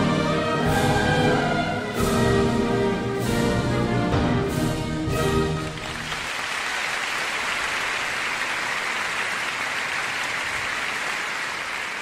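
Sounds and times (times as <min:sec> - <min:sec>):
orchestral music: 0:00.0 - 0:06.2
crowd applauding: 0:05.5 - 0:12.0.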